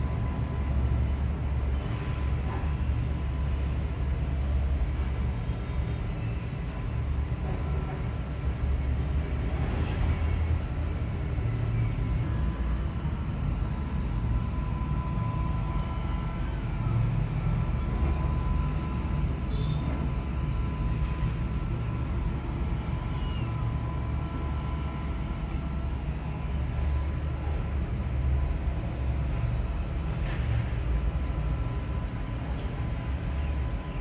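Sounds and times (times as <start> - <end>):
faint high chirps: 23.0 - 23.6.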